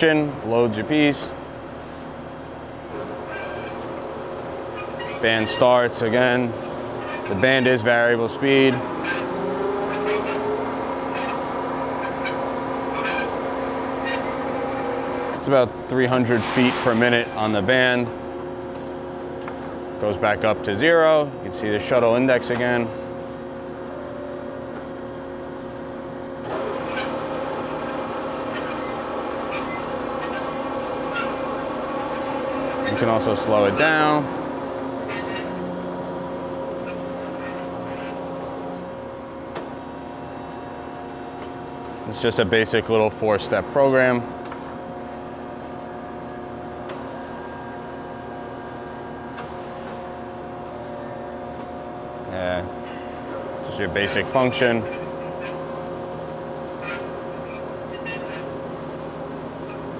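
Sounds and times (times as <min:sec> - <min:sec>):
rough running machine sound: 0:00.0 - 0:59.9
band saw humming: 0:02.9 - 0:16.2, 0:26.3 - 0:44.3
high squeaks: 0:09.0 - 0:11.4.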